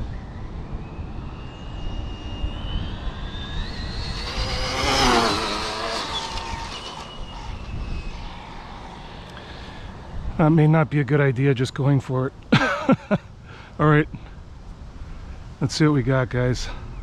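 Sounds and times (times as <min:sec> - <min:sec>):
rc car motor whine: 0:00.0 - 0:10.2
wind rumbling on microphone: 0:00.0 - 0:11.7.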